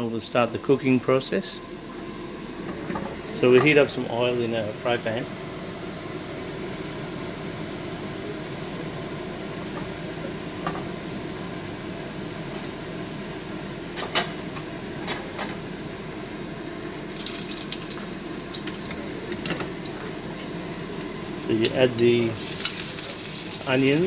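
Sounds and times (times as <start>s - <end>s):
oil crackling and sizzling: 17.0s - 24.0s
gas burner hiss: 17.1s - 24.0s.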